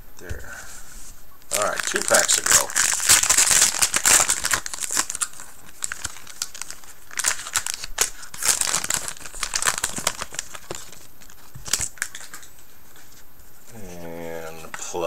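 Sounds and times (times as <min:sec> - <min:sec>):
foil wrapper crinkling: 0:01.5 - 0:12.6.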